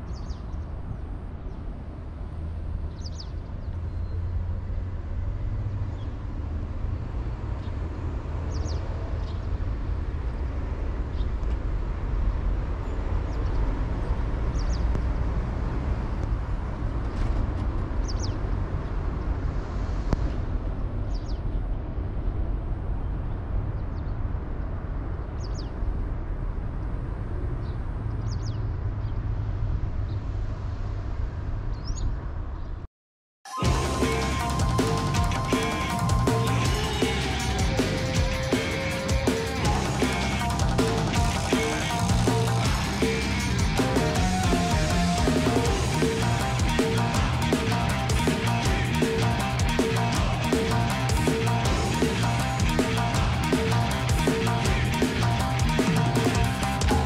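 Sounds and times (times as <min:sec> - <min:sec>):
steady low rumble: 0:33.6 - 0:57.0.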